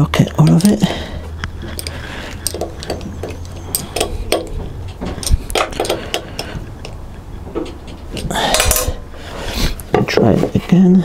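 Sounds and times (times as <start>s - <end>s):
spanner clicking on metal bolts: 0.4s - 0.9s, 1.7s - 9.0s.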